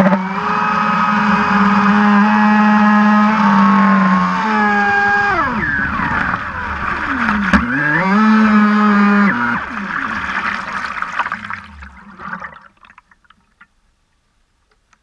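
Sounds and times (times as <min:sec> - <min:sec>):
electric motor high whine: 0:00.0 - 0:10.6.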